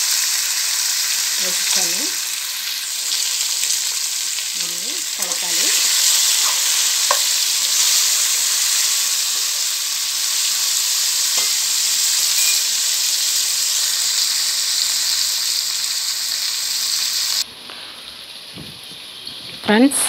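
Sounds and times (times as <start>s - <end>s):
vegetables sizzling in hot oil: 0.0s - 20.0s
spoon scraping pan: 5.2s - 8.0s.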